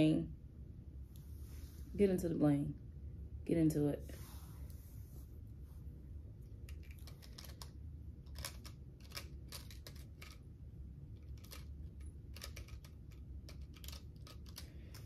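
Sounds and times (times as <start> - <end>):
fingernails clicking on plastic: 12.3 - 15.0.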